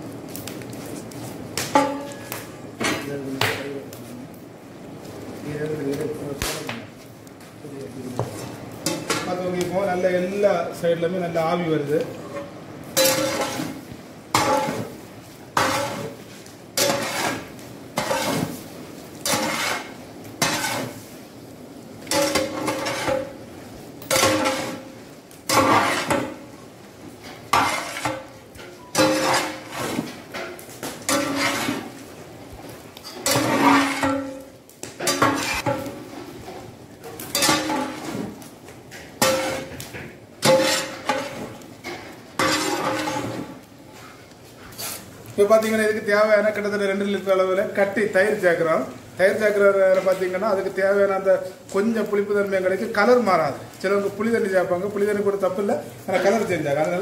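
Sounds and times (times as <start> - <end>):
metal ladle scraping pot: 12.2 - 13.8, 15.6 - 18.6, 19.2 - 21.0, 22.1 - 23.4, 24.1 - 24.9, 25.5 - 26.4, 27.3 - 32.0, 33.1 - 34.4, 35.0 - 36.0, 37.2 - 38.3, 40.4 - 43.7.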